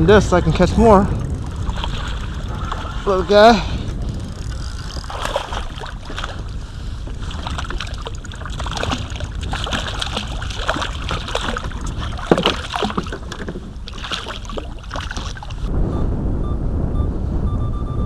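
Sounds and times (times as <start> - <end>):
wind buffeting microphone: 0.0 - 18.0
fish splashing in water: 1.4 - 3.1, 4.4 - 15.7.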